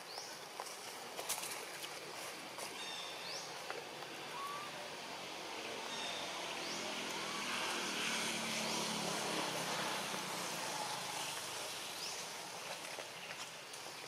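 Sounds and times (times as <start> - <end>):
distant engine drone passing: 2.8 - 12.9.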